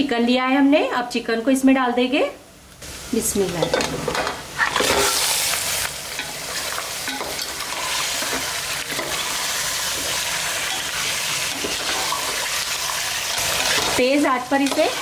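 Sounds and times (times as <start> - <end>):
chicken sizzling in hot oil: 4.4 - 15.0.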